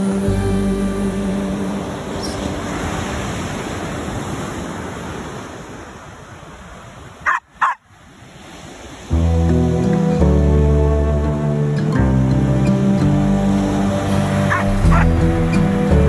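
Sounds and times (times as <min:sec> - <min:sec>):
music: 0:00.0 - 0:02.4, 0:09.1 - 0:16.0
surf washing on beach: 0:00.0 - 0:16.0
dog barking: 0:07.2 - 0:07.8, 0:14.5 - 0:15.1.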